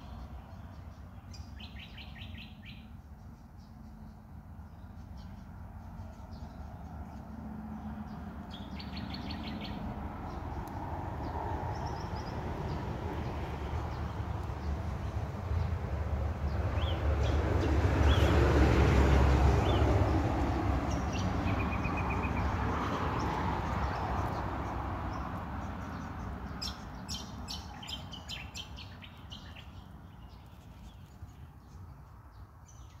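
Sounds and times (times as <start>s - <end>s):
birds chirping: 0.0s - 15.6s, 20.9s - 33.0s
passing vehicle: 5.0s - 30.5s.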